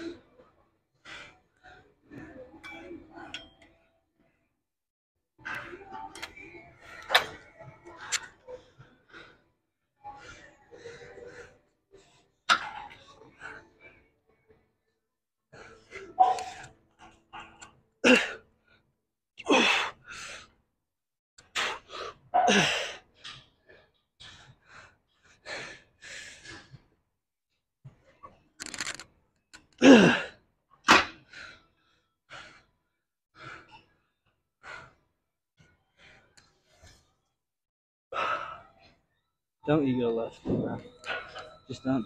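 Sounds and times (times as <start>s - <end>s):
man exhaling and groaning: 29.8s - 30.3s.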